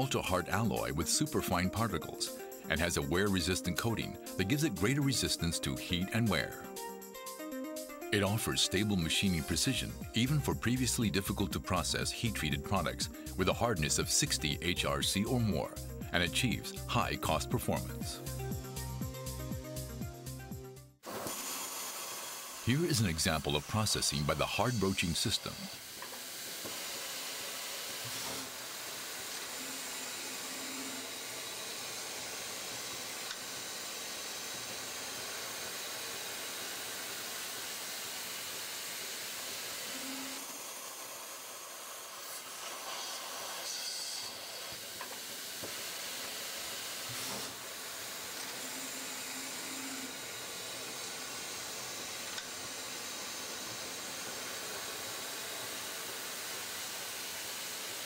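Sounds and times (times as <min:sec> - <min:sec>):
broaching machine hissing: 0:21.0 - 0:58.0.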